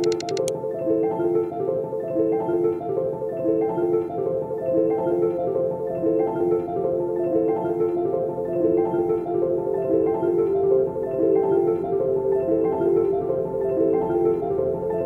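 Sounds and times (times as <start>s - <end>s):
mallet percussion melody: 0.0s - 0.5s.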